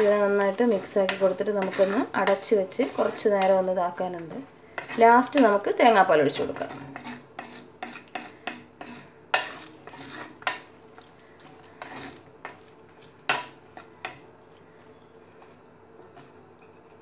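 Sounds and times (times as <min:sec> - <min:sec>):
wooden spatula scraping clay pot: 0:00.0 - 0:10.7, 0:11.4 - 0:12.7.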